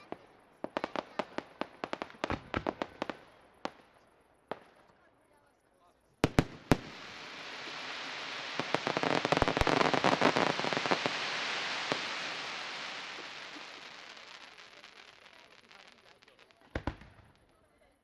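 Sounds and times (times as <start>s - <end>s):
firework shells bursting: 6.2s - 17.4s
crackling hiss of sparks: 6.2s - 17.6s.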